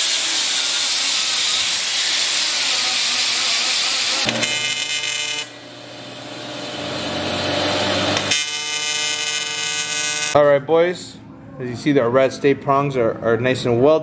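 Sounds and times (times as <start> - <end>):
die grinder on metal: 0.0 - 10.4
welding arc buzzing: 0.0 - 10.4.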